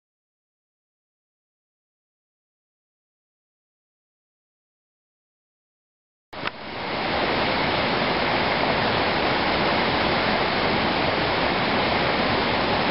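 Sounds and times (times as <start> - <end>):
waterfall rushing: 6.4 - 12.9.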